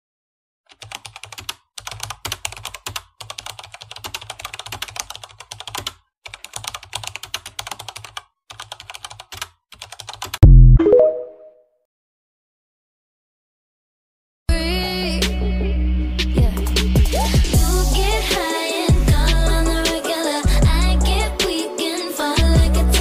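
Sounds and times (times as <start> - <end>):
rapid keyboard-like clicking: 0.7 - 10.4.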